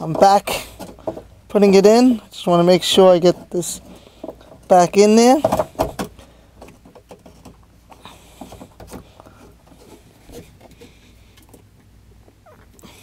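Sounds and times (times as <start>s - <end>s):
faint clicks scrapes and rustles: 6.6s - 13.0s.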